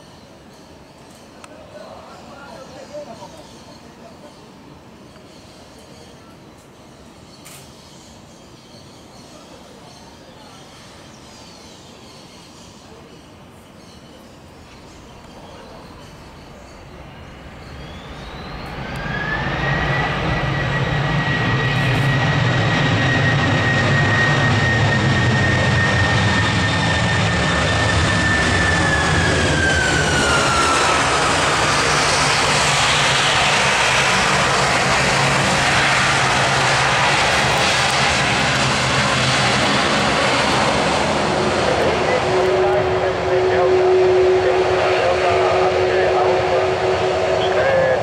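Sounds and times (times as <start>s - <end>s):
jet engines spooling up: 17.0s - 48.0s.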